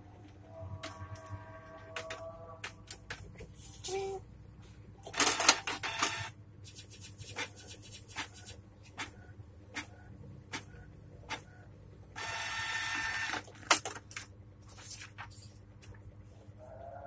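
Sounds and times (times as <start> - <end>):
printer grinding whirr: 5.1 - 6.4, 11.4 - 13.8.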